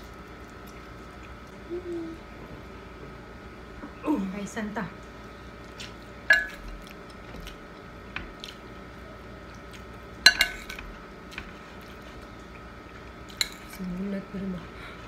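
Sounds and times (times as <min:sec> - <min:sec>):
chewing: 0:00.0 - 0:01.7, 0:05.0 - 0:10.2
metal spoon clinking on a bowl: 0:06.3 - 0:06.6, 0:10.3 - 0:10.8.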